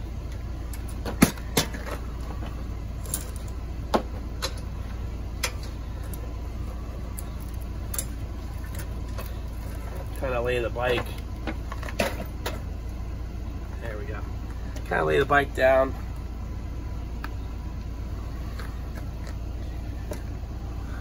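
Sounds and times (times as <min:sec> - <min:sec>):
steady low rumble: 0:00.0 - 0:21.0
bicycle parts clanking: 0:00.7 - 0:06.2, 0:10.9 - 0:12.7.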